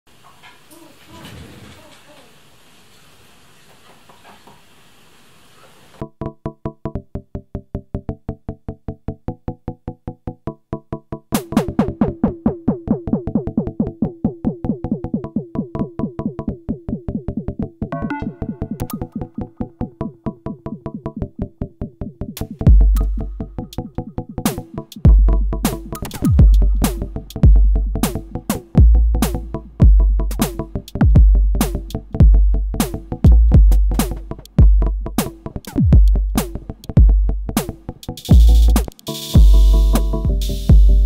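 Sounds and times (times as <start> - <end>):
faint hiss: 0.1 - 6.0.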